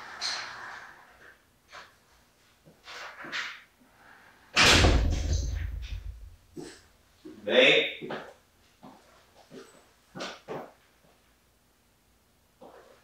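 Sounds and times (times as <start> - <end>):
loud thump with low rumble: 4.6 - 6.5.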